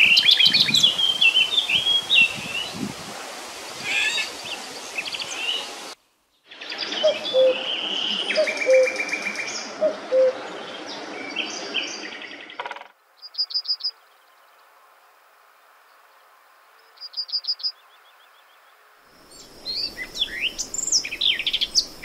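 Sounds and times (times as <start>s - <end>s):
songbirds singing: 0.0s - 2.9s, 3.8s - 14.8s, 15.8s - 22.0s
cuckoo calling: 6.8s - 10.4s.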